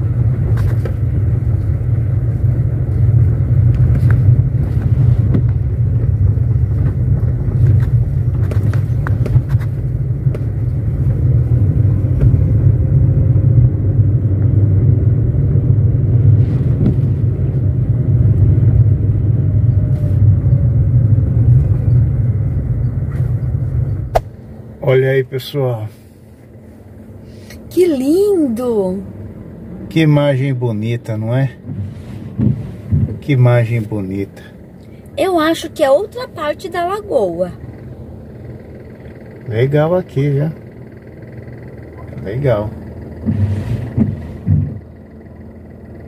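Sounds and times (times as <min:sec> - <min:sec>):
car road and engine rumble: 0:00.0 - 0:46.0
knocks and rattles from bumps: 0:43.2 - 0:44.9.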